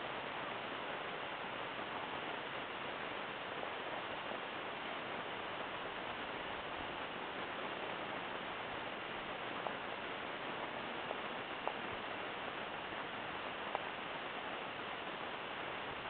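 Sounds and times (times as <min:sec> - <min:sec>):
steady background hiss: 0:00.0 - 0:16.0
faint ticks: 0:10.5 - 0:12.8, 0:13.4 - 0:15.2.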